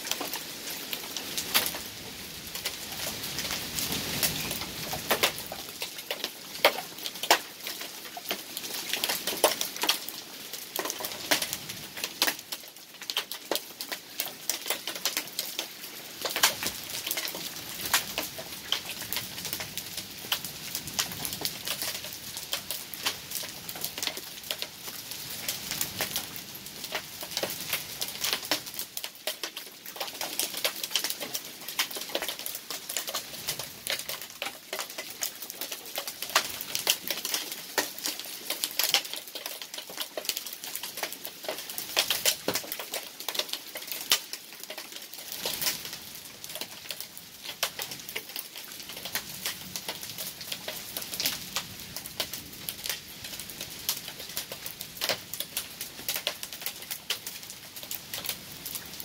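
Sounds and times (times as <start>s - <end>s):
heavy rain and hail pattering: 0.0s - 59.0s.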